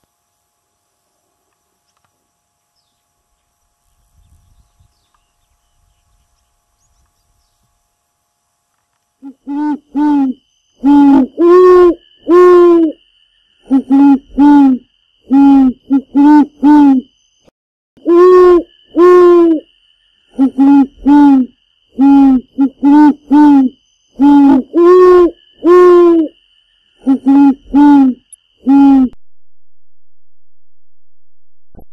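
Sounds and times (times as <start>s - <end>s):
owl-style hooting: 9.2s - 13.0s, 13.6s - 17.1s, 18.0s - 29.2s.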